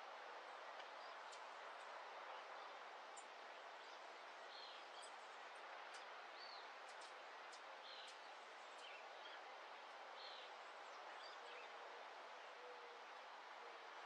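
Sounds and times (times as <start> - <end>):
soft steady hiss: 0.0 - 14.0
birds chirping: 0.8 - 9.4.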